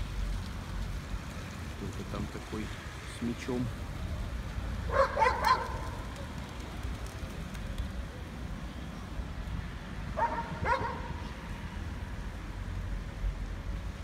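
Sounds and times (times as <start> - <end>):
dog barking: 4.9 - 5.8, 10.2 - 11.1.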